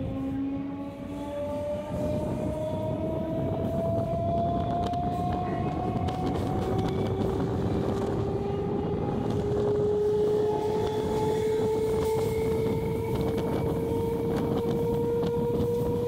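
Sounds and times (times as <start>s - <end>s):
traction motor whine rising: 0.0s - 16.0s
train wheels rumbling on rail: 0.0s - 16.0s.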